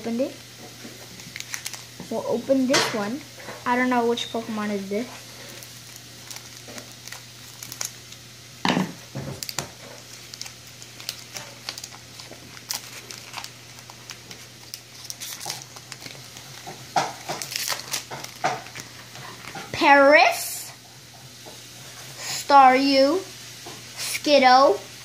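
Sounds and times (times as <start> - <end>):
foil wrapper crinkling: 0.5 - 2.6, 3.4 - 19.8.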